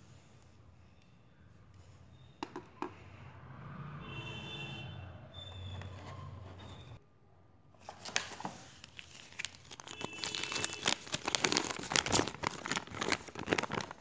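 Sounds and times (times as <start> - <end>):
packaging crinkling: 7.8 - 14.0.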